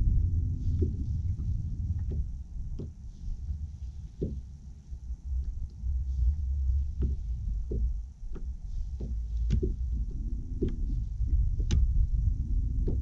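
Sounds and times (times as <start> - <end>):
wind rumble on microphone: 0.0 - 13.0
small knocks and clicks: 0.8 - 3.1, 3.8 - 4.8, 6.8 - 13.0.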